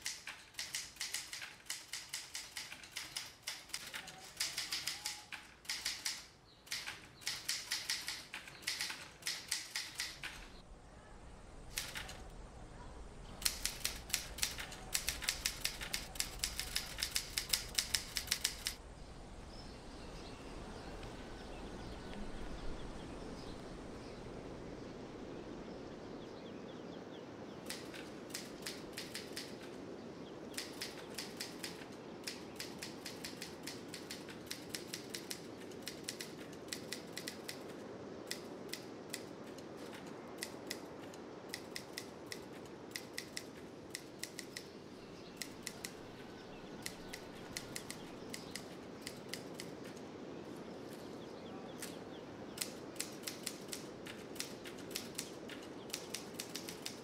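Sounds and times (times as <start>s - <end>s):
rapid sharp clicks: 0.0s - 10.6s, 11.7s - 12.3s, 13.4s - 18.8s, 27.7s - 29.8s, 30.5s - 46.2s, 46.8s - 50.0s, 52.6s - 57.0s
steady background hiss: 0.0s - 57.0s.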